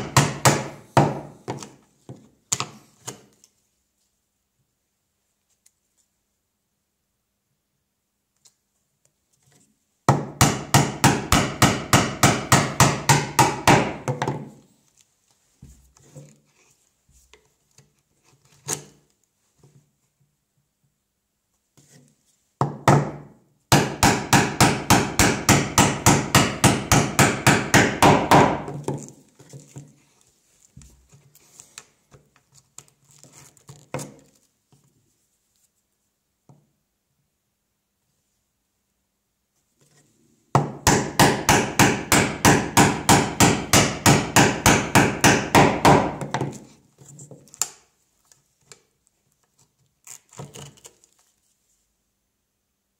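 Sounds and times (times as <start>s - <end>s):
mallet striking chisel: 10.1s - 14.1s, 23.0s - 28.7s, 40.6s - 46.2s.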